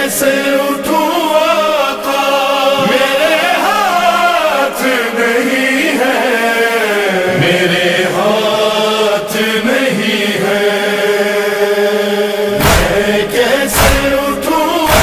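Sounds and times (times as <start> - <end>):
men chanting: 0.0 - 15.0
chest-beating thumps: 12.5 - 15.0.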